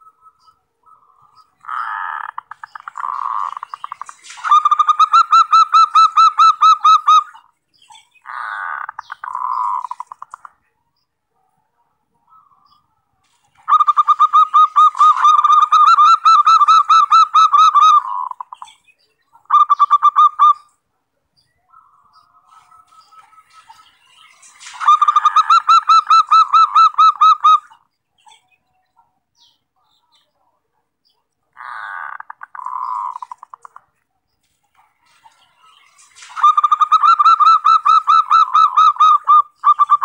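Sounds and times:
dove trilled cooing: 8.2 - 10.5, 13.6 - 18.7, 24.8 - 27.7, 31.6 - 33.8, 36.3 - 40.0.

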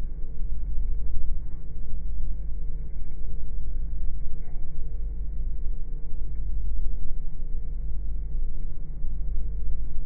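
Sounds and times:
faint hum: 0.0 - 10.0.

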